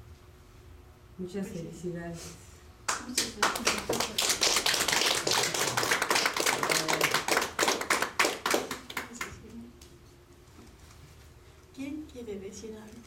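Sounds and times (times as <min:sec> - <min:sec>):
people applauding: 0:02.9 - 0:09.4.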